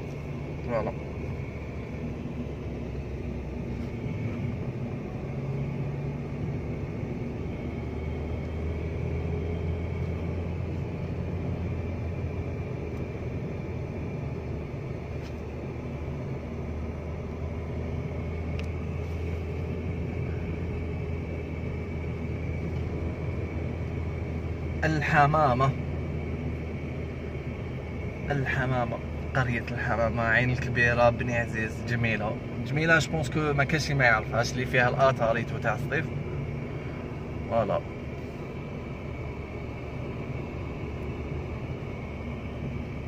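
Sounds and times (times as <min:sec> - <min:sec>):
car interior engine and road drone: 0:00.0 - 0:43.0.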